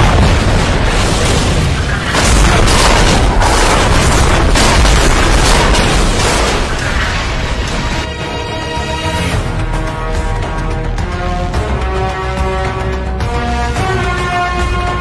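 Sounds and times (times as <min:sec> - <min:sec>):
loud rumbling explosions: 0:00.0 - 0:08.2.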